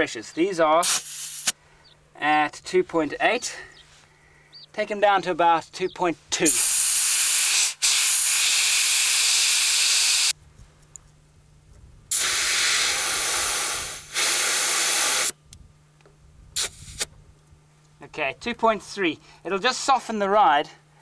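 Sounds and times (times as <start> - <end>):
air hissing from tyre valve: 0.8 - 1.6, 6.5 - 10.4, 12.1 - 15.4, 16.6 - 17.1.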